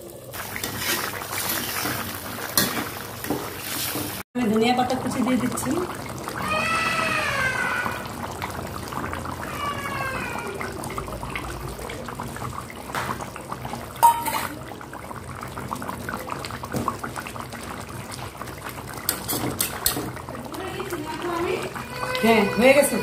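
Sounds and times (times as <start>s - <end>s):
curry bubbling: 0.0s - 23.0s
cat meowing: 9.4s - 10.7s.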